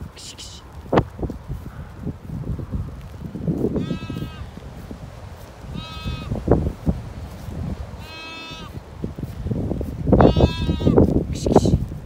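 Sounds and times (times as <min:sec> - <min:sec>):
footsteps in grass: 0:00.0 - 0:12.0
low wind rumble: 0:00.0 - 0:12.0
lamb bleating: 0:03.8 - 0:04.5, 0:05.7 - 0:06.4, 0:08.0 - 0:08.8, 0:10.2 - 0:11.0.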